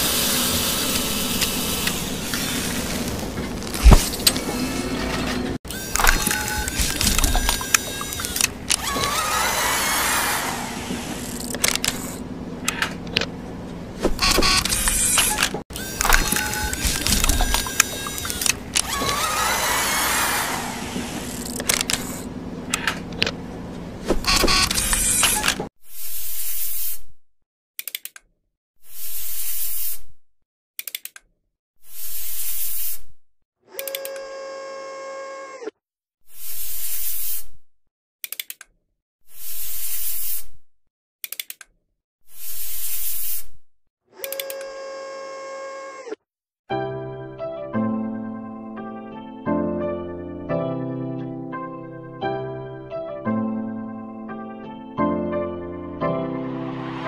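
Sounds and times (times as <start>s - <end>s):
hissing spray: 0.0s - 4.0s
whirring motor: 0.0s - 26.6s
sharp mechanical clicks: 3.8s - 9.1s, 11.1s - 13.3s, 14.0s - 19.0s, 21.2s - 23.4s, 24.1s - 25.7s, 27.8s - 28.3s, 30.8s - 31.3s, 33.8s - 34.2s, 38.2s - 38.8s, 41.2s - 41.7s, 44.2s - 44.7s.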